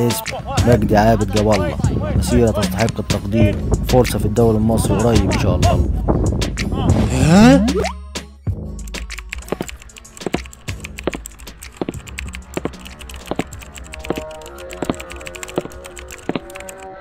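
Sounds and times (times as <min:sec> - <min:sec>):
rapid irregular clicking: 0:08.8 - 0:16.9.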